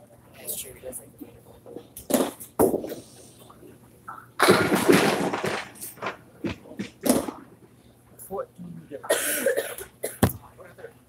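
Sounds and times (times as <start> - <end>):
bowling pins clattering: 4.4 - 7.5, 10.0 - 10.5
bowling ball knocking on lane: 10.2 - 10.4.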